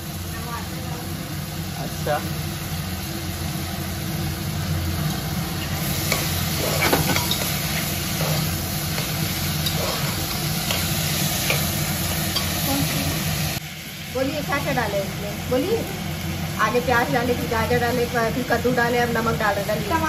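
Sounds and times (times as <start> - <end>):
vegetables sizzling in oil: 0.0 - 20.0
spoon stirring and scraping: 5.9 - 12.6.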